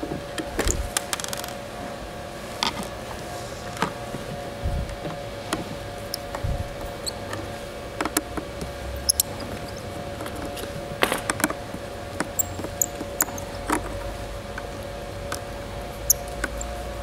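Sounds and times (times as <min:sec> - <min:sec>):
steady hum: 0:00.0 - 0:17.0
screwdriver clicks and squeaks: 0:09.0 - 0:10.7, 0:12.2 - 0:14.0, 0:16.1 - 0:16.8.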